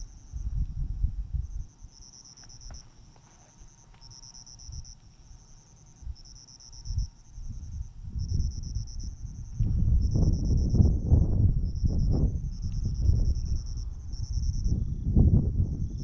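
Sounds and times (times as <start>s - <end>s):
crickets chirping: 0.0s - 16.0s
low rumble: 6.9s - 16.0s.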